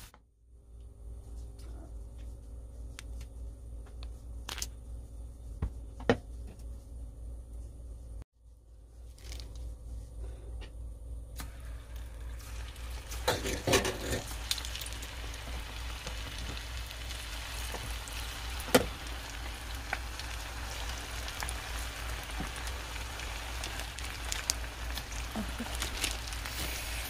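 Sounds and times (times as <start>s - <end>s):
plastic bag rustling: 9.0s - 9.8s, 12.3s - 27.0s
oil sizzling and crackling: 11.4s - 27.0s.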